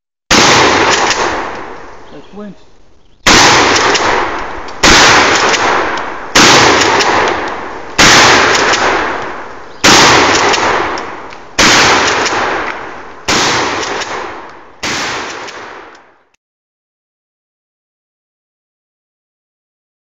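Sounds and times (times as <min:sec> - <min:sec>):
shotgun shots with echo: 0:00.3 - 0:01.8, 0:03.2 - 0:15.9.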